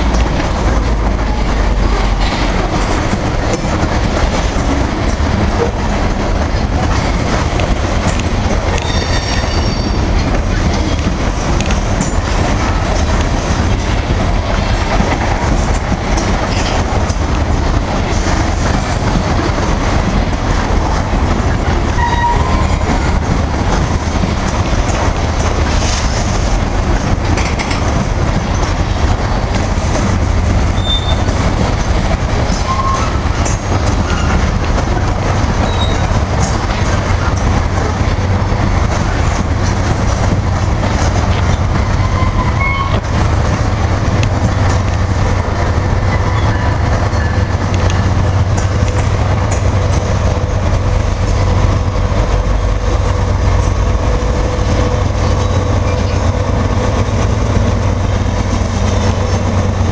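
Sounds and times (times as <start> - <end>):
train wheels rumbling on rails: 0.0 - 59.9
wheel squeals: 8.7 - 10.2, 30.8 - 31.4, 35.6 - 36.1.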